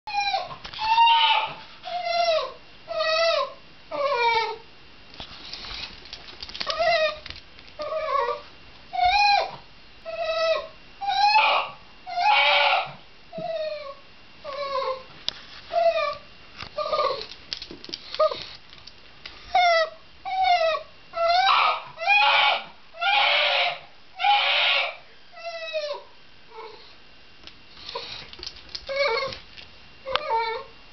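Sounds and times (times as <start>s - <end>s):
dog whining and crying: 0.1s - 4.6s, 6.6s - 15.1s, 15.7s - 16.2s, 16.8s - 17.4s, 19.4s - 26.9s, 28.8s - 29.4s, 30.0s - 30.8s.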